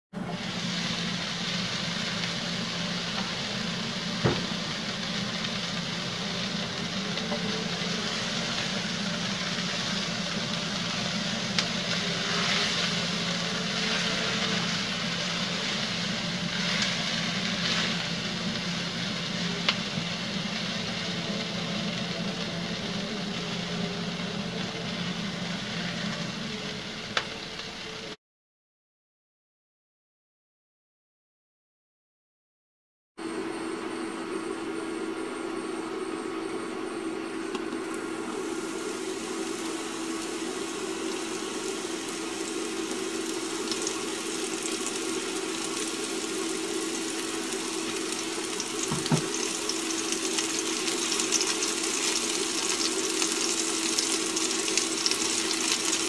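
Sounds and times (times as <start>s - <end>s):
vegetables sizzling in a frying pan: 0.2s - 28.2s, 33.3s - 56.0s
low hum: 33.2s - 55.4s.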